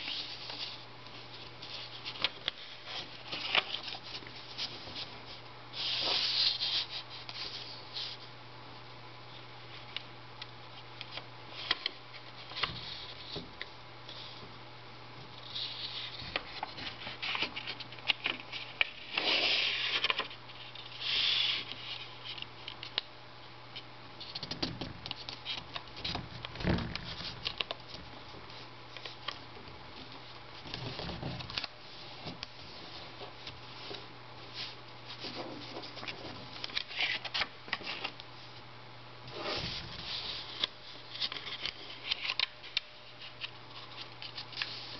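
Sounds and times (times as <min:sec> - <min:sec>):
paper crackling and rustling: 0:00.0 - 0:08.3, 0:15.4 - 0:23.0, 0:24.2 - 0:38.2, 0:39.3 - 0:44.9.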